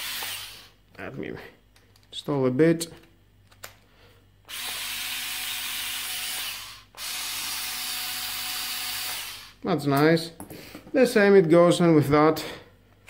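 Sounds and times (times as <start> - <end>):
cordless screwdriver whirring: 0.0 - 0.7, 4.5 - 9.6.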